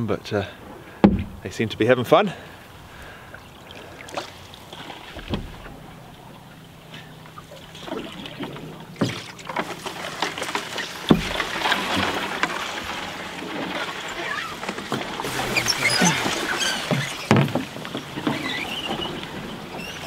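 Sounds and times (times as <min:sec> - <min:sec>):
paddle in water: 0:00.0 - 0:20.0
sharp knocks on canoe: 0:01.0 - 0:01.4, 0:07.8 - 0:12.6, 0:14.7 - 0:19.1.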